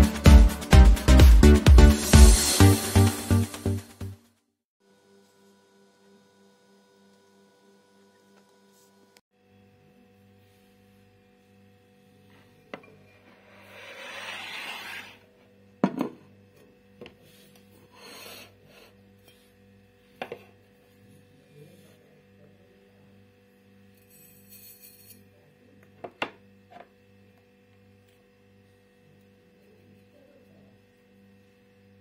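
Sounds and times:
glass bowl knocking on table: 15.8 - 16.2.

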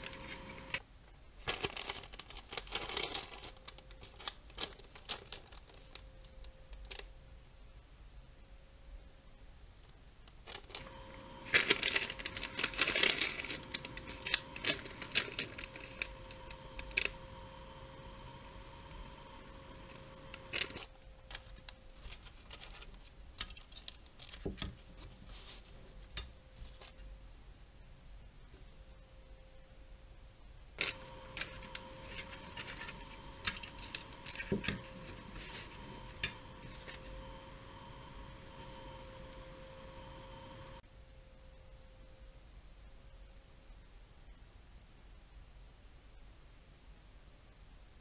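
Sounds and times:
paper sleeve crinkling: 0.0 - 0.8, 1.4 - 6.0, 10.5 - 24.4, 30.8 - 40.8.

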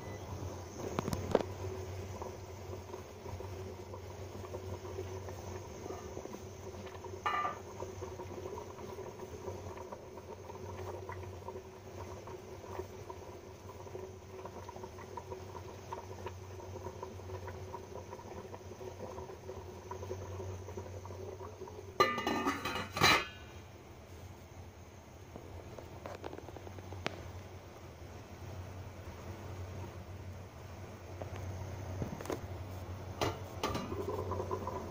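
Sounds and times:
soup bubbling in pot: 0.0 - 34.9
metal lid clanking on pot: 7.2 - 7.7, 22.0 - 23.5, 33.2 - 34.0.

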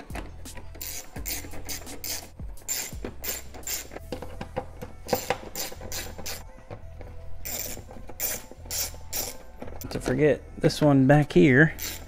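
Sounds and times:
background music: 0.0 - 12.0
hand ratchet clicking: 0.2 - 6.4, 7.4 - 10.2, 11.6 - 12.0.

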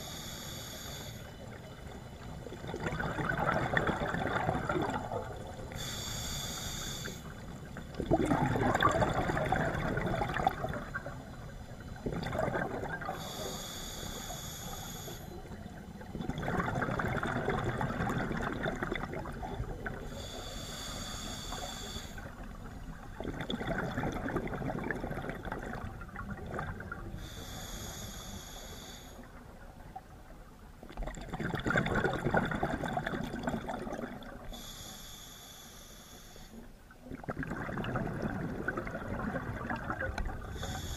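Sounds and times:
regulator hissing inhale: 0.0 - 1.4, 5.7 - 7.5, 13.1 - 15.5, 20.0 - 22.4, 27.2 - 29.4, 34.4 - 36.7, 40.4 - 40.9
exhaled bubbles rushing: 2.5 - 5.7, 7.9 - 11.3, 12.0 - 13.2, 16.1 - 20.0, 22.2 - 27.1, 30.9 - 34.5, 37.0 - 40.7.

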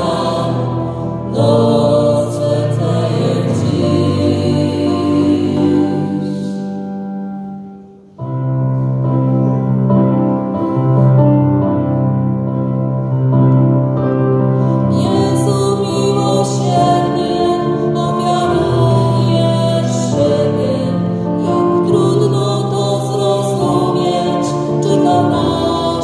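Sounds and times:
vocal group singing a carol: 0.0 - 7.0, 14.9 - 26.0
keyboard chords: 0.0 - 26.0.

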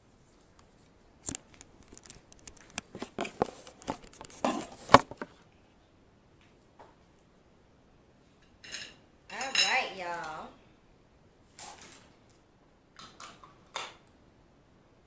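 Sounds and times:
crinkly rustling: 0.2 - 5.4.

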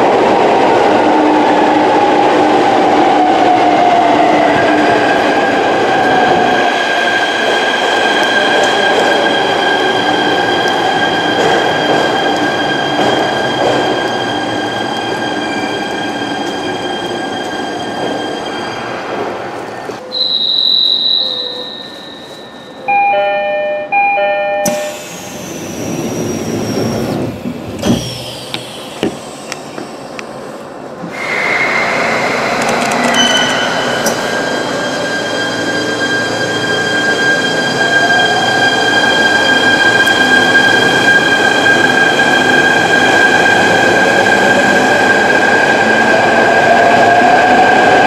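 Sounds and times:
train door chime: 20.1 - 25.1, 33.0 - 34.4.

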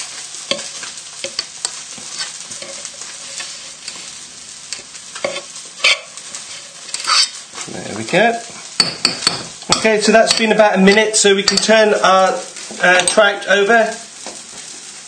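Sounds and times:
fish sizzling in a pan: 0.0 - 15.0
fork scraping a saucepan: 5.2 - 7.4.

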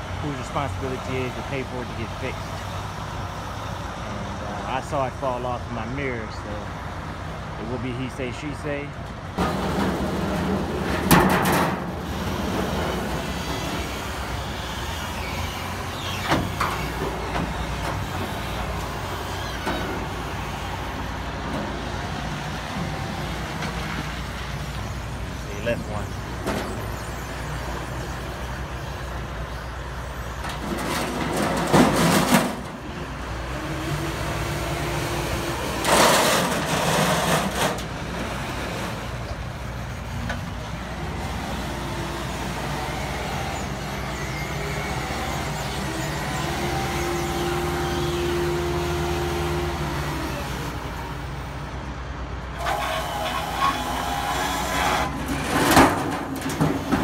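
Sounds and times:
metal scraping and clatter: 9.4 - 14.0, 30.3 - 32.9, 35.6 - 38.3, 52.6 - 57.0
forklift engine revving: 40.8 - 51.4, 52.5 - 57.0.

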